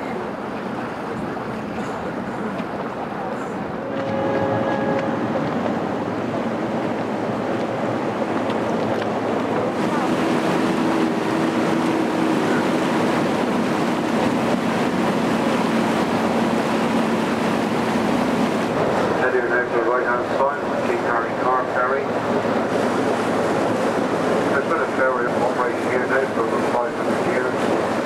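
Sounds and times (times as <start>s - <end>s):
boat engine running: 0.0s - 28.0s
water rushing past hull: 0.0s - 28.0s.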